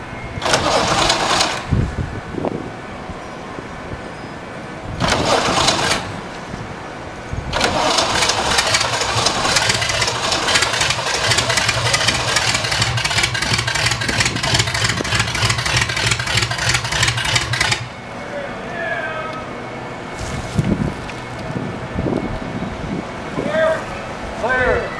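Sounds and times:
aircraft engine cranking: 0.4s - 2.0s, 4.9s - 6.8s, 7.4s - 18.2s
aircraft engine pulsing: 0.4s - 2.3s, 4.8s - 18.2s.

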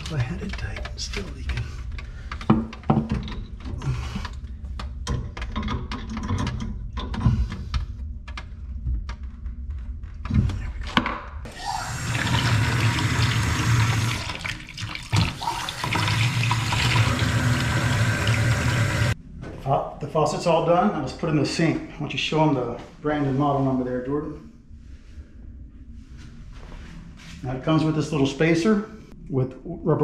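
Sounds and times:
faucet running into plastic bucket: 11.5s - 19.2s.

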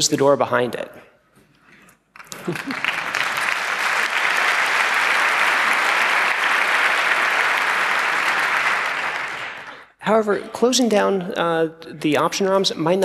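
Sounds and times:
audience applauding: 2.2s - 9.9s.

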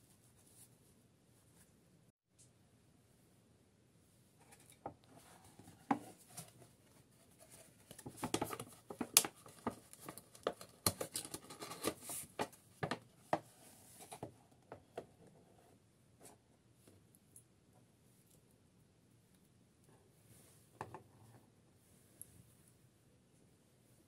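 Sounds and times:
box handling clicks and rustles: 7.5s - 13.1s.

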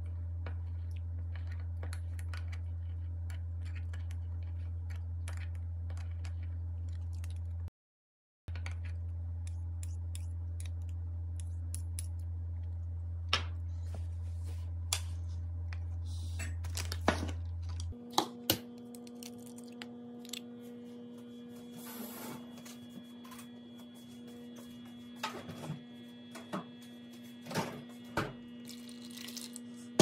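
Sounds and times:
steady low hum: 8.5s - 30.0s.

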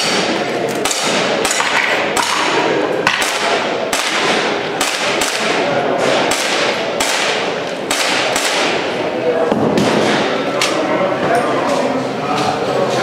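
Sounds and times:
airsoft pistol shots: 0.0s - 8.9s.

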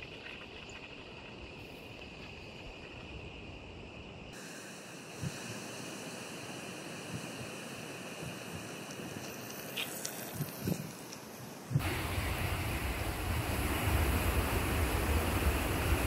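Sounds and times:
wind noise on microphone: 7.0s - 16.0s.

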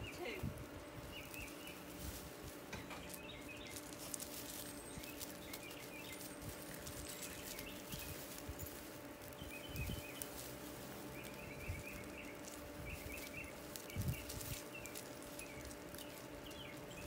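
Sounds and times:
birds chirping faintly: 0.0s - 17.0s
puppies rustling through grass: 0.0s - 17.0s
scuffing on gravel: 0.0s - 17.0s.

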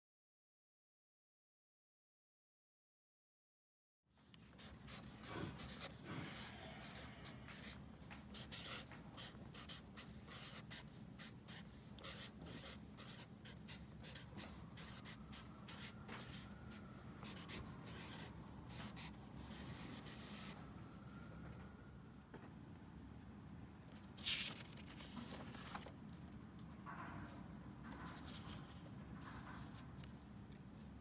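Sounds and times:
marker rubbing across paper: 4.6s - 20.6s.

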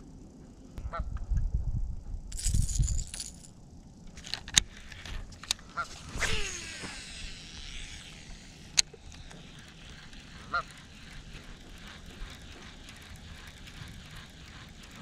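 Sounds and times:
fishing reel ticking: 4.5s - 15.0s.

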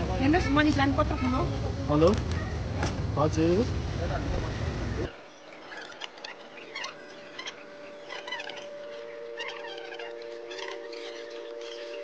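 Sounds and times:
small birds chirping: 4.1s - 12.0s
steady low hum: 6.2s - 12.0s.

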